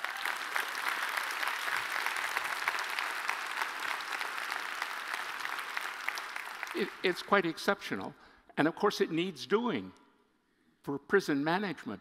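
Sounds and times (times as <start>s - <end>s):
audience applauding: 0.0s - 7.5s.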